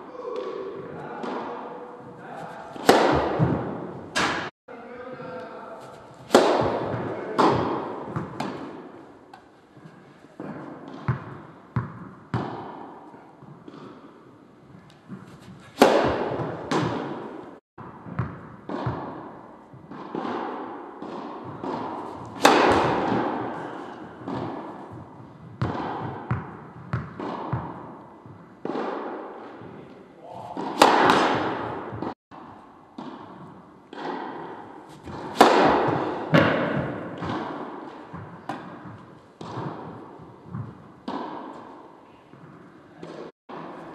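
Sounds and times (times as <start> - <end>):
tennis balls hit by rackets: 0.2 - 4.5, 5.8 - 43.9
tennis balls bouncing on court: 2.1 - 4.5, 5.8 - 43.9.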